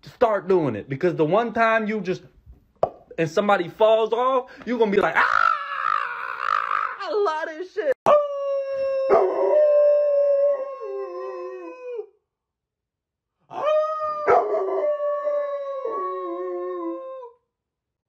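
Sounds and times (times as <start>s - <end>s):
lower second dog howling: 8.1s - 12.1s, 13.5s - 17.4s
dog howling: 8.1s - 12.2s, 13.5s - 17.4s.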